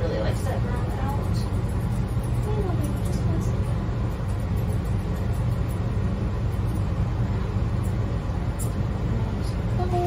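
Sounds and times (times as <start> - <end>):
low machine hum: 0.0 - 10.0
scissors snipping: 0.8 - 5.9.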